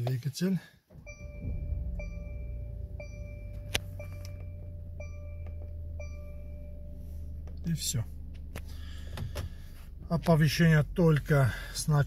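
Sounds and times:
seat belt warning chime: 0.9s - 8.6s
car engine idling: 0.9s - 12.0s.

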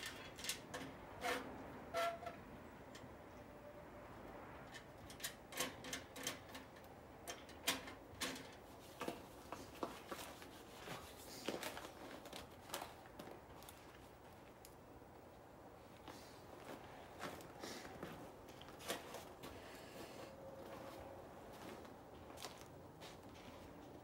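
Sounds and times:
clicks and knocks of metal parts: 0.0s - 1.0s, 4.6s - 9.6s.

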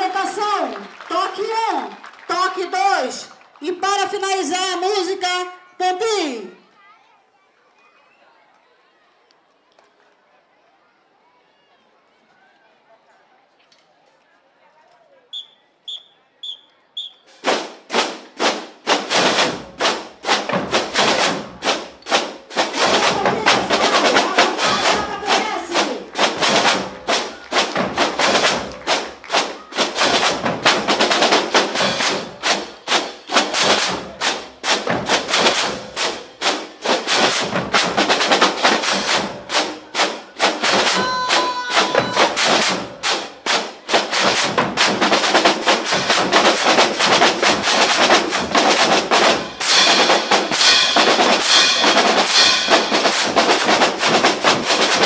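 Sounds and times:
whistle blasts: 15.3s - 17.4s
marching percussion band: 17.3s - 55.0s.

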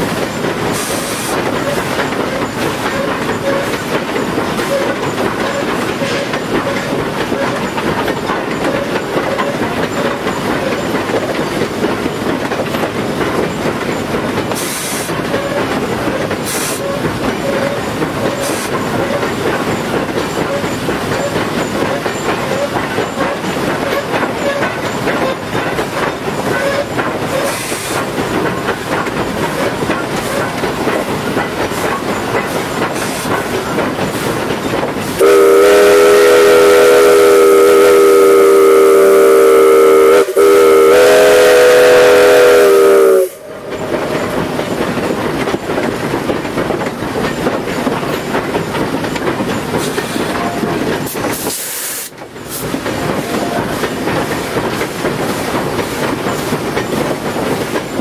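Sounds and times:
train running and rail clatter: 0.0s - 58.0s
steam whistle blasts: 35.2s - 43.5s.

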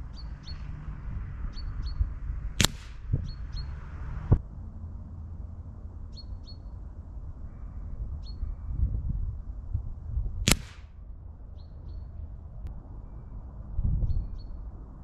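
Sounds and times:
pellet striking paper target: 2.6s - 3.1s, 10.5s - 10.9s.

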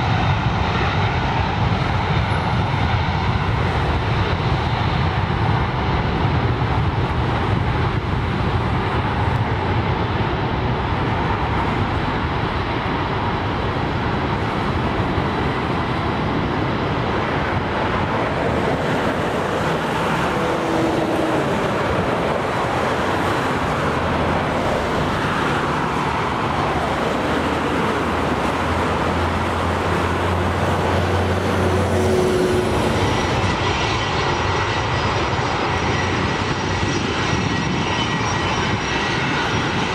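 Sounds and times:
jet engines rumbling: 0.0s - 39.9s.

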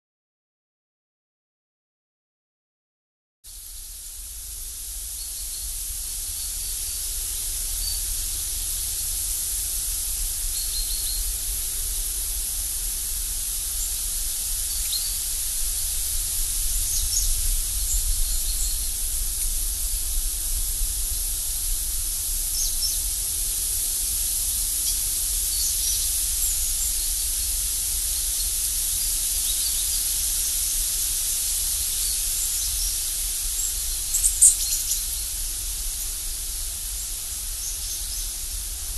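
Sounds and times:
steady high hiss: 3.5s - 38.9s
small birds chirping: 10.2s - 11.4s, 13.8s - 20.0s, 22.2s - 23.2s, 24.0s - 27.6s, 28.2s - 36.2s, 36.8s - 38.5s.

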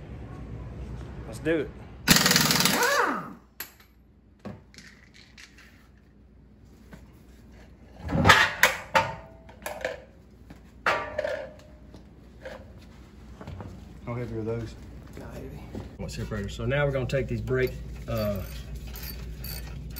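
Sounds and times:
air impact wrench whine: 2.1s - 3.4s, 17.6s - 19.9s.

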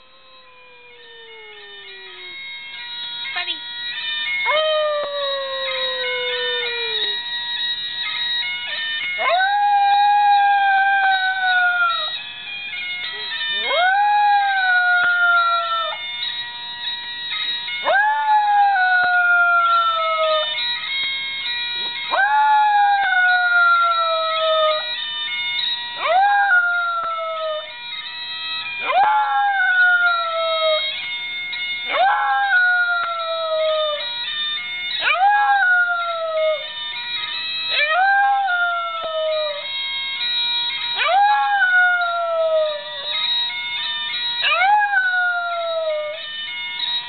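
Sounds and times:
dog howling: 0.0s - 2.5s, 4.4s - 7.3s, 8.6s - 12.2s, 12.8s - 16.0s, 17.8s - 20.6s, 21.8s - 25.0s, 26.0s - 27.8s, 28.8s - 31.0s, 31.9s - 34.1s, 35.0s - 36.7s, 37.7s - 39.7s, 41.0s - 43.2s, 44.4s - 46.3s
bagpipe ringtone from a phone: 0.0s - 47.0s.

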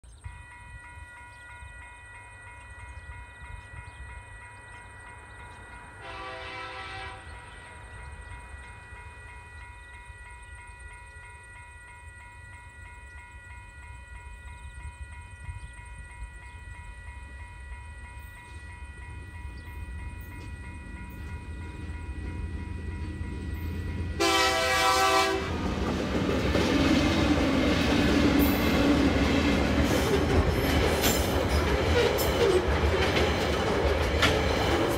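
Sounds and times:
level-crossing bell ringing: 0.1s - 25.4s
train rumbling over crossing: 0.1s - 34.9s
locomotive horn blasts: 6.0s - 7.6s, 24.2s - 25.7s.

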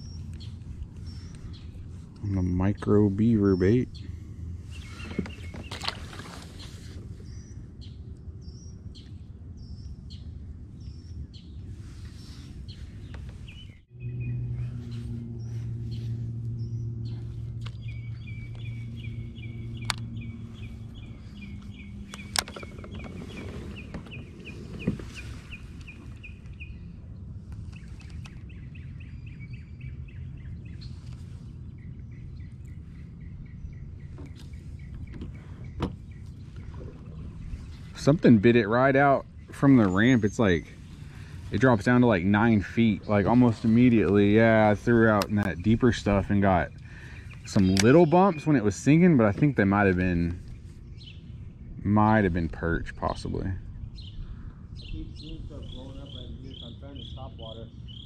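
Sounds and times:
birds chirping: 0.0s - 58.0s
low background hum: 0.0s - 58.0s
sharp clicks: 19.8s - 20.1s, 47.4s - 48.0s.

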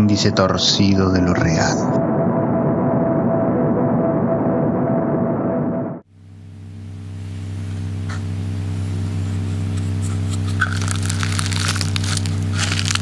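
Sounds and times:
low steady hum: 0.0s - 13.0s
dense crackling: 10.1s - 13.0s.

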